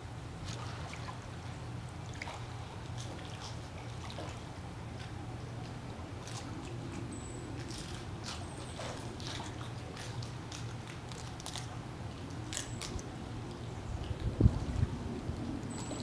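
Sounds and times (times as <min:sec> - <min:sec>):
steady low hum: 0:00.0 - 0:16.0
otter crunching and chewing food: 0:06.2 - 0:14.2.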